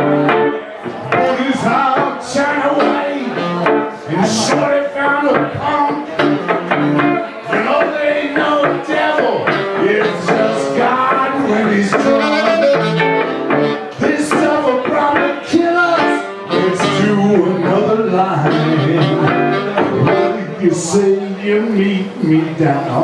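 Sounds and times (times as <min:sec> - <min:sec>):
saxophone melody: 0:00.0 - 0:00.5, 0:01.2 - 0:04.8, 0:05.4 - 0:07.4, 0:08.6 - 0:21.1
electric guitar: 0:00.0 - 0:23.0.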